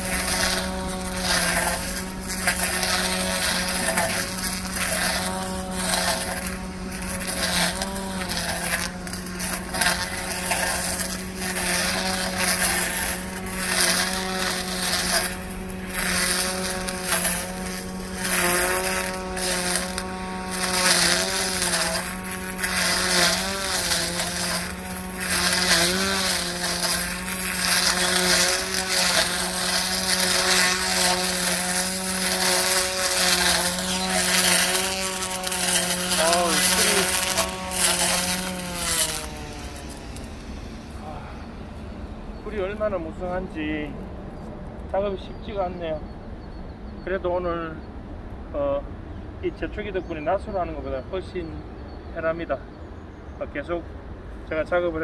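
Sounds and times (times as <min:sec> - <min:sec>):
swish of cut grass: 0:00.0 - 0:41.1
electric brush cutter motor hum: 0:00.0 - 0:43.8.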